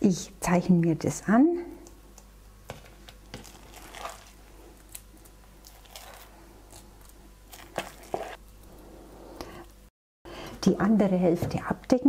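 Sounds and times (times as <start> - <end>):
spoon scooping wet filling: 3.4 - 6.9, 7.5 - 8.4.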